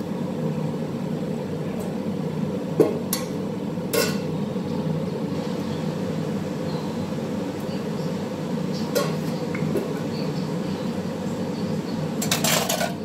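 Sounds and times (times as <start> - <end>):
steady low hum: 0.0 - 13.0
metal pot clanking: 12.2 - 13.0.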